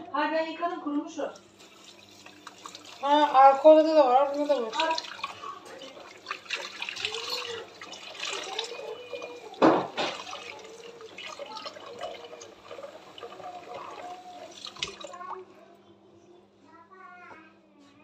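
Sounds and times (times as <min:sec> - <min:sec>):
water splashing and dripping: 0:01.4 - 0:15.4
wet cloth wrung out: 0:01.6 - 0:15.4
tap running into sink: 0:06.0 - 0:15.2
loud splash or knock: 0:09.6 - 0:10.4.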